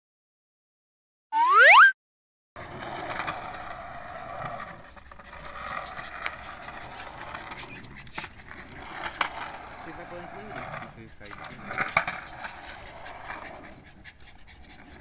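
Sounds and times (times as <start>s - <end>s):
rising whistle transition effect: 1.4s - 1.9s
skateboard wheels rolling on concrete: 2.6s - 15.0s.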